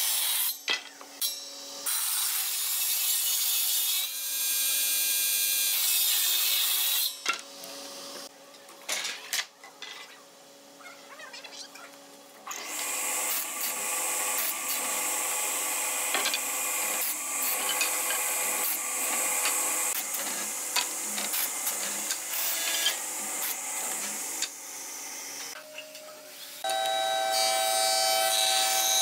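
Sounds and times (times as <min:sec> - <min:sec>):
table saw cutting wood: 0:00.0 - 0:07.2, 0:12.5 - 0:25.6, 0:26.6 - 0:29.0.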